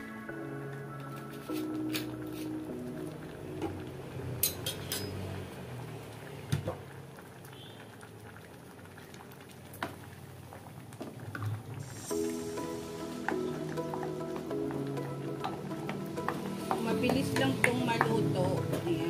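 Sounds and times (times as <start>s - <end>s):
background music: 0.0s - 4.6s, 11.8s - 19.0s
soup boiling in pot: 2.6s - 19.0s.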